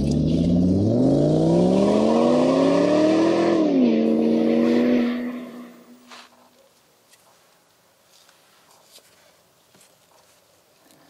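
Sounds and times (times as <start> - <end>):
engine revving: 0.0 - 6.1.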